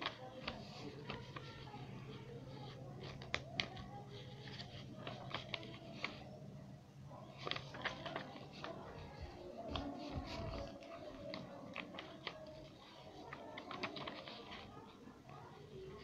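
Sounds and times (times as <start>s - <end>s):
paper rustling and snapping: 0.0s - 1.9s, 2.6s - 6.3s, 7.3s - 15.0s
sharp paper clicks: 0.0s - 6.3s, 7.3s - 16.0s.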